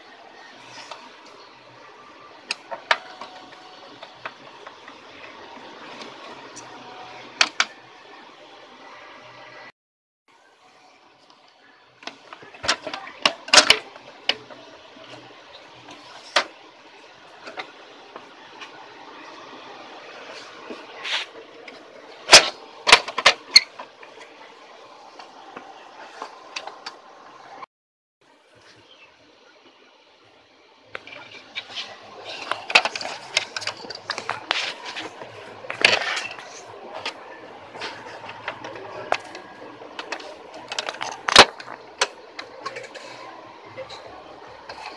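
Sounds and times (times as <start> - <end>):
plastic and metal clicks and knocks: 12.0 - 14.5.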